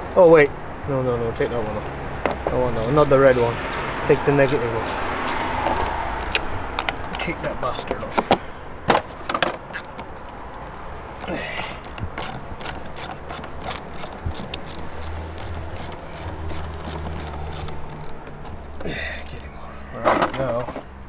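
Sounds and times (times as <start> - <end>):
socket ratchet clicking: 2.7 - 7.2, 9.7 - 18.8.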